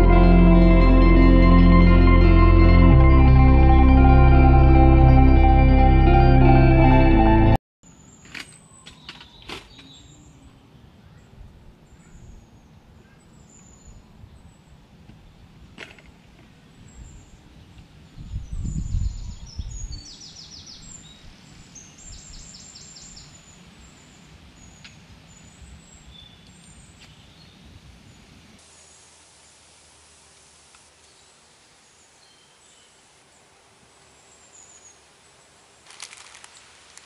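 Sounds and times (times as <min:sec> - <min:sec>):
low rumble: 0:00.0 - 0:07.6.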